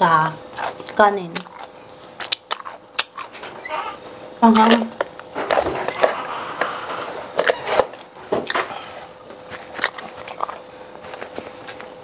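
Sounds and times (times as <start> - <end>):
crunchy eating and chewing: 0.0 - 12.0.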